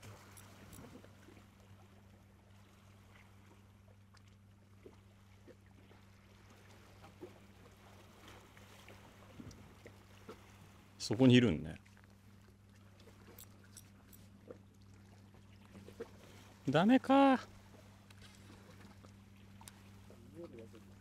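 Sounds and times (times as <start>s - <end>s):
soft ticks: 19.6s - 19.8s.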